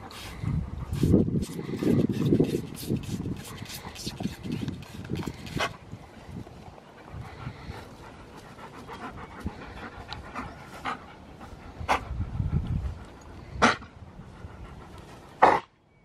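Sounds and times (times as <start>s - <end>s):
dogs panting: 0.0s - 15.7s
spray bottle hissing spurts: 0.2s - 5.7s.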